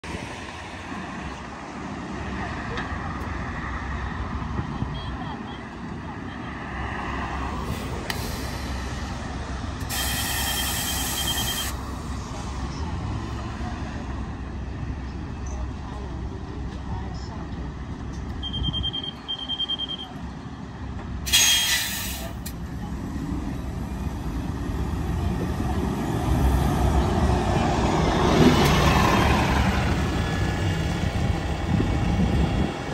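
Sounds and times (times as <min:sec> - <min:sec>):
bus diesel engine idling: 0:07.6 - 0:27.9, 0:28.6 - 0:32.9
air suspension hiss with whistle: 0:09.9 - 0:11.8, 0:21.3 - 0:22.3.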